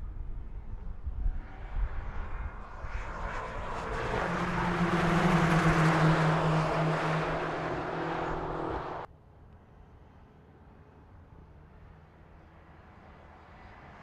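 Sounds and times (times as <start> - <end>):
cars passing at speed: 1.2 - 9.1.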